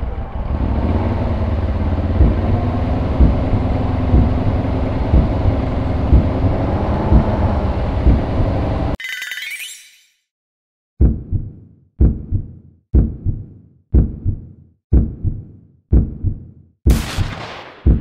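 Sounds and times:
motorcycle engine running: 0.0s - 9.0s.

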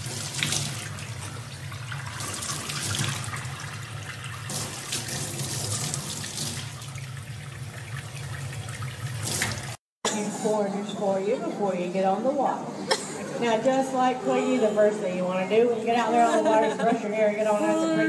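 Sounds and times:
tap water running into sink: 0.0s - 9.8s.

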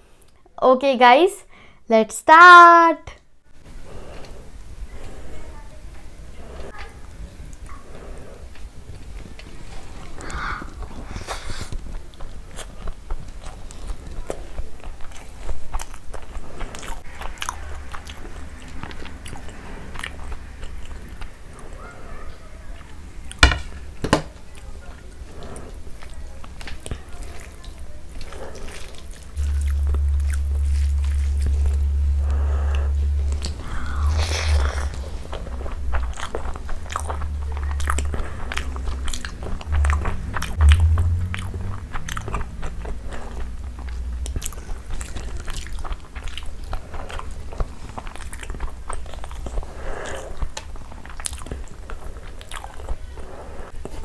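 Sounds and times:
person chewing food: 6.5s - 23.4s, 24.5s - 54.0s
low hum: 28.3s - 49.8s.

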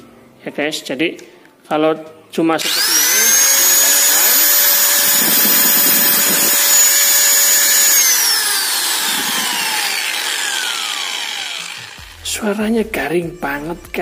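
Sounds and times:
angle grinder motor whine: 2.6s - 12.4s.

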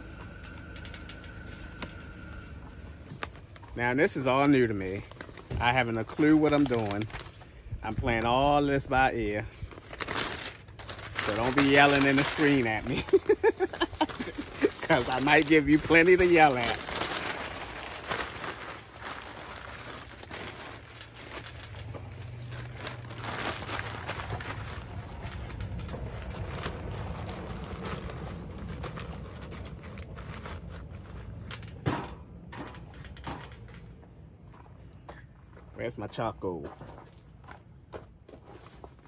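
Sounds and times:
newspaper crumpling and rustling: 3.0s - 31.7s.

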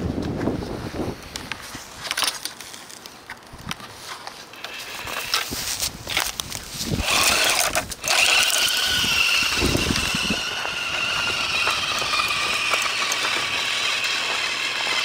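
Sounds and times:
rc truck motor whine: 4.5s - 5.6s, 6.8s - 15.0s.

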